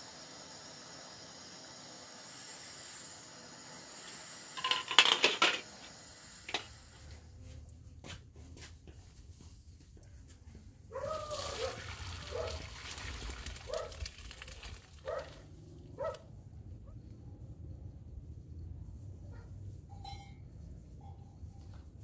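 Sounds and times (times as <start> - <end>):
dog barking: 10.9 - 12.6, 13.7 - 14.0, 15.0 - 15.4, 16.0 - 16.3
water splashing into colander: 11.2 - 15.4.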